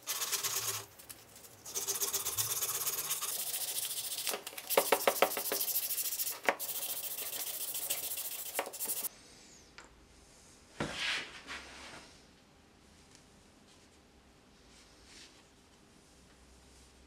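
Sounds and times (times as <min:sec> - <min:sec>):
sandpaper rubbing on wood: 0:00.0 - 0:09.1.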